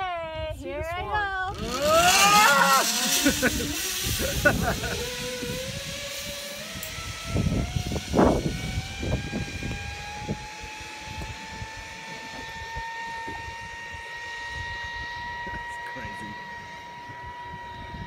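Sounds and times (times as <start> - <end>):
low rumbles: 0.5 - 18.0
zipline pulleys whining on cable: 0.6 - 18.0.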